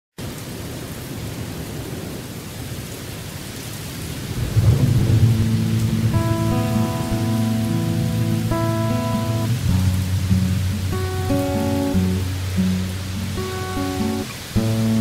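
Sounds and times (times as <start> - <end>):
steady rain hiss: 0.2 - 15.0
low rumble of thunder: 4.1 - 11.4
sustained musical notes: 4.6 - 15.0.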